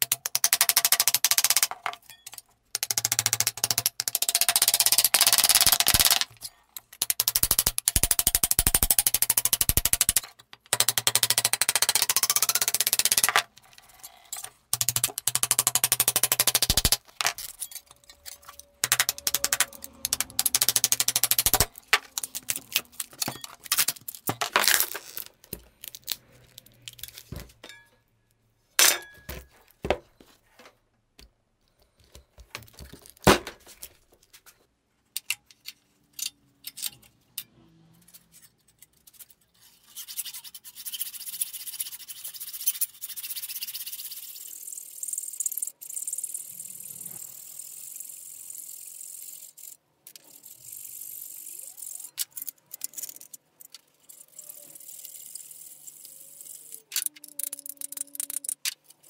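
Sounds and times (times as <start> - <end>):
hacksaw cutting metal: 14.3 - 24.4
hand scraper scraping steel: 16.4 - 25.0
metal clinks and knocks: 17.0 - 25.8, 26.5 - 28.2.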